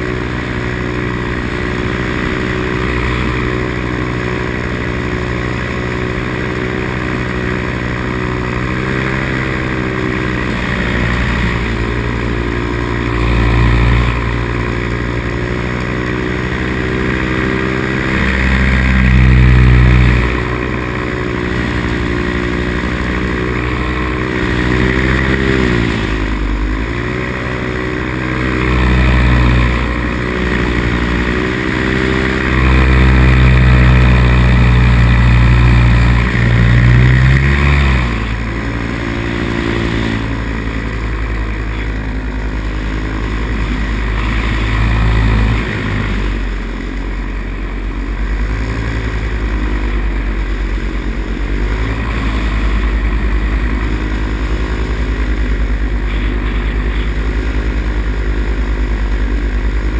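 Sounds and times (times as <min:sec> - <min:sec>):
paramotor engine droning: 0:00.0 - 0:59.9.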